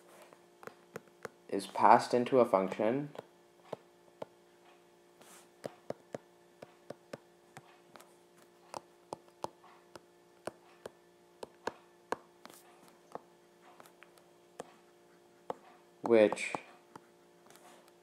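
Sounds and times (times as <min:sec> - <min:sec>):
faint electrical hum: 0:00.0 - 0:18.0
stylus tapping on tablet screen: 0:00.6 - 0:01.4, 0:05.6 - 0:14.8, 0:15.5 - 0:17.1.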